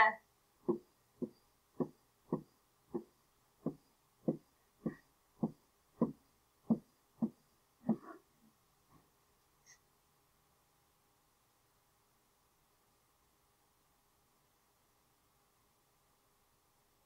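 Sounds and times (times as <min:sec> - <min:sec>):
pen tapping on whiteboard: 0:00.7 - 0:08.2.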